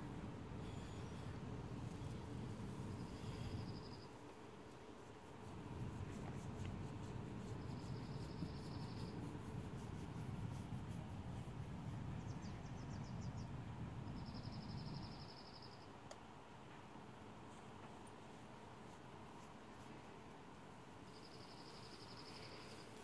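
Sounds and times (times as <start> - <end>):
insect pulsed trills: 1.9 - 4.2, 7.4 - 9.4, 14.1 - 15.9, 21.0 - 23.0
insect high ticks: 1.9 - 10.4, 21.0 - 23.0.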